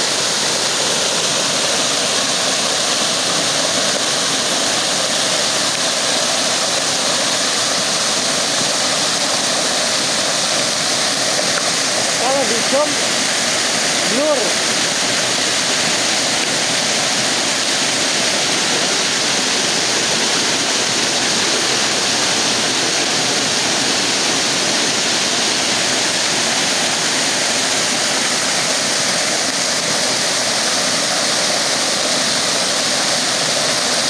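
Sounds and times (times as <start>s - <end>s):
waterfall rushing: 0.0s - 34.0s.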